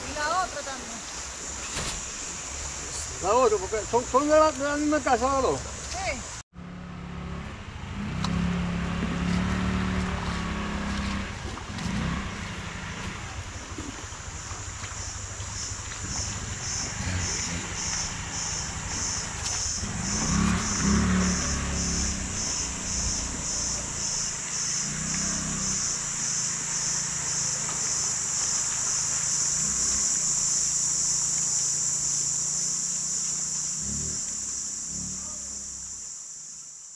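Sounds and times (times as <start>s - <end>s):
insects shrilling: 13.6s - 36.9s.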